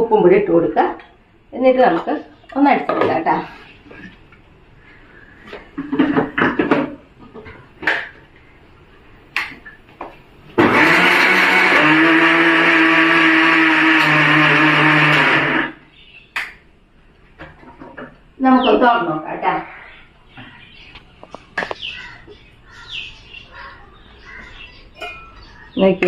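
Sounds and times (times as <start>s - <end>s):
mixer grinder running: 10.6s - 15.8s.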